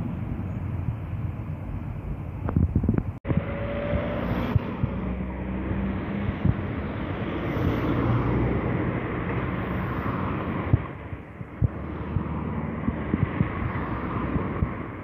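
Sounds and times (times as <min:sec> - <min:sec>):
diesel locomotive engine humming: 0:00.0 - 0:03.7.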